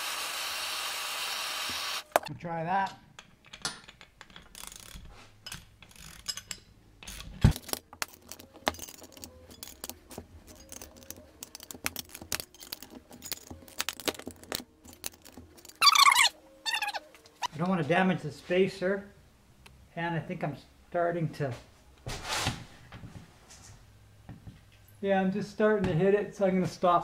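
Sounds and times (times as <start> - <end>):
wrench clicking and clinking: 3.2 - 16.3.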